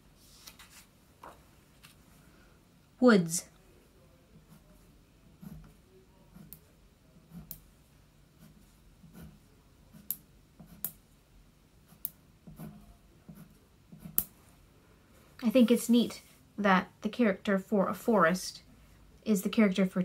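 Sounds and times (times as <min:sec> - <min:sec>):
crayon scratching on paper: 0:05.4 - 0:07.6, 0:08.4 - 0:11.0, 0:11.8 - 0:14.3.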